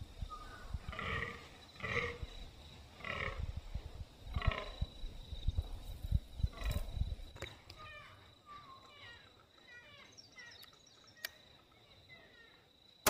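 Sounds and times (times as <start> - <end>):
deer buck deep croaking groans: 0.7 - 5.0, 6.4 - 7.1.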